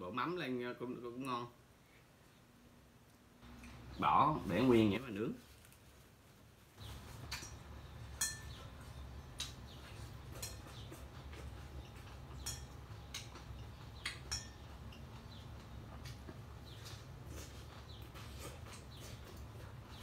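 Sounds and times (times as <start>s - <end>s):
utensils clinking on glass bowl: 8.2s - 8.6s, 12.4s - 12.8s, 14.2s - 15.1s.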